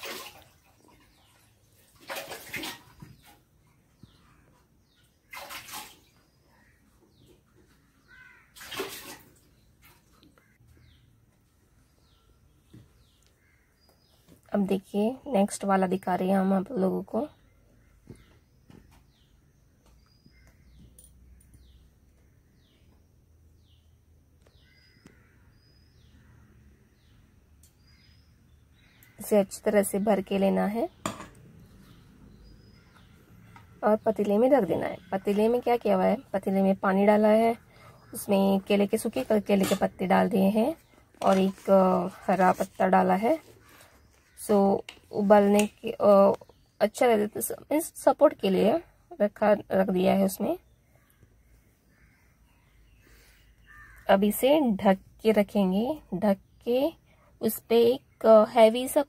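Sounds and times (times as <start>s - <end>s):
faint bird chirping: 2.8s - 8.6s, 9.4s - 59.0s
spoon stirring batter in metal bowl: 38.7s - 40.6s.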